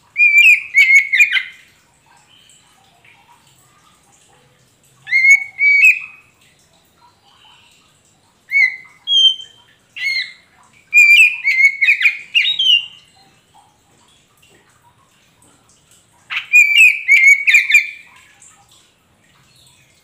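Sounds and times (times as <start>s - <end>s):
bird singing whistled notes: 0.2s - 1.5s, 5.1s - 6.2s, 8.5s - 13.0s, 16.3s - 18.0s.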